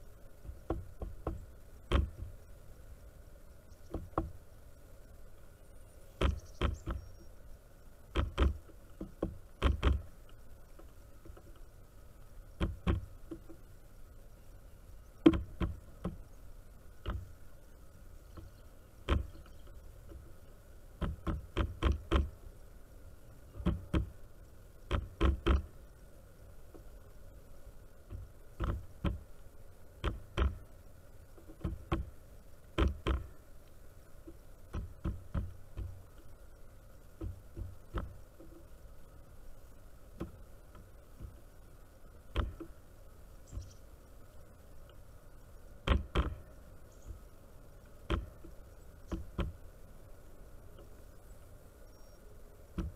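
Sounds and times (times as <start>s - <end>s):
beaks pecking on wooden feeder: 6.1s - 7.4s, 8.0s - 13.7s, 15.1s - 22.5s, 23.3s - 24.2s, 24.8s - 25.8s, 26.6s - 52.9s.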